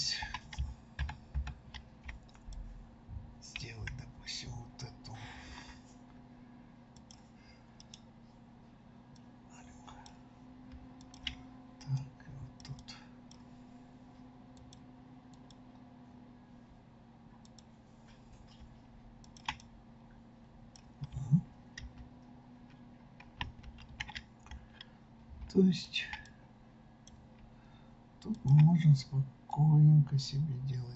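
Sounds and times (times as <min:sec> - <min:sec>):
low steady hum: 0:00.0 - 0:30.9
mouse and keyboard clicks: 0:28.2 - 0:28.8.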